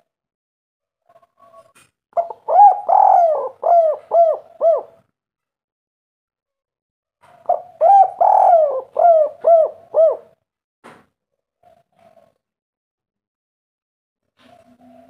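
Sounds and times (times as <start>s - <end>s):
dove cooing: 1.1s - 5.0s, 7.3s - 10.4s.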